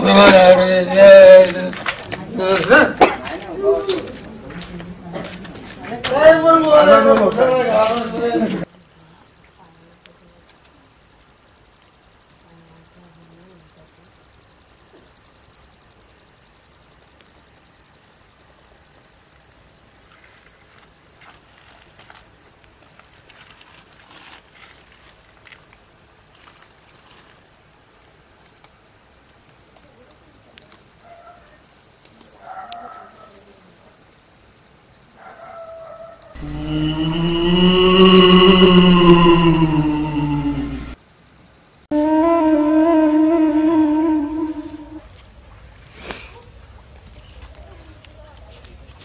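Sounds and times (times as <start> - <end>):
insects chirring: 5.9 - 45.8.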